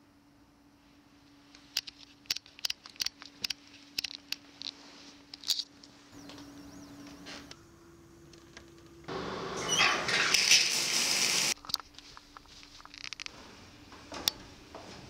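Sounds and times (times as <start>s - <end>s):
low hum: 3.7s - 9.5s.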